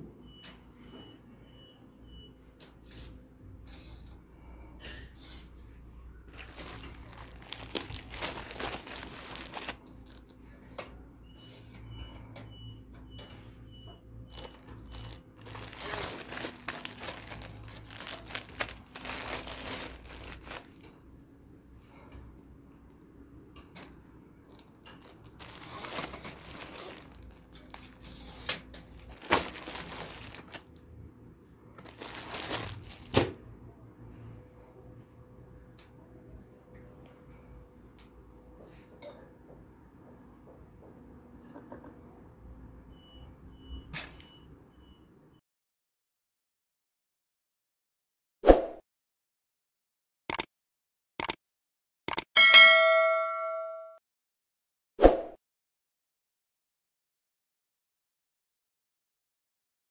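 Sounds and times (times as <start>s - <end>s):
plastic packaging crinkling: 6.3s - 10.4s, 14.3s - 20.9s, 24.5s - 28.2s, 28.8s - 30.8s, 31.8s - 33.2s
sharp clicks: 50.3s - 50.5s, 51.2s - 51.4s, 52.1s - 52.3s.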